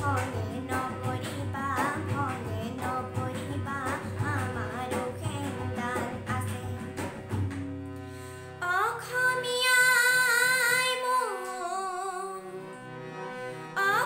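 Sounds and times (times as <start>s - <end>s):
girl singing: 0.0s - 7.0s, 8.6s - 12.5s, 13.8s - 14.0s
tabla strokes: 0.0s - 7.9s
harmonium notes: 0.0s - 14.0s.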